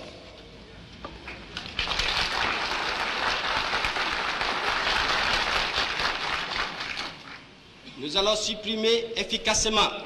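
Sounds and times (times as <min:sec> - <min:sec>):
audience applauding: 0:01.6 - 0:07.5.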